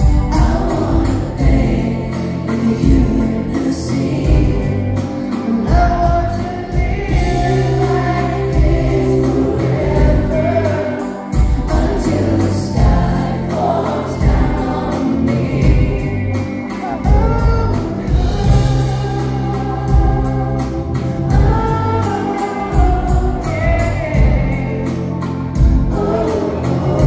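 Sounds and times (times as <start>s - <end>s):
live pop band: 0.0s - 27.0s
man singing: 0.0s - 27.0s.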